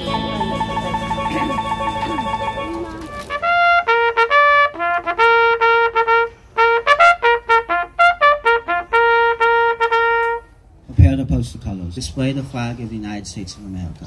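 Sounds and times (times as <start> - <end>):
trumpet bugle call: 0.0 - 10.6.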